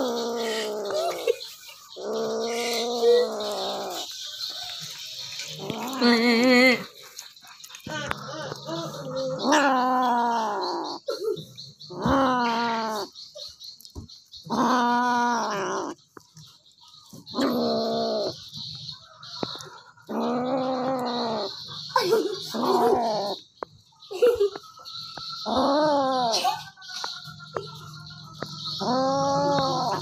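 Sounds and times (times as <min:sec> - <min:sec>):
kitten growling: 0:28.8 - 0:30.0.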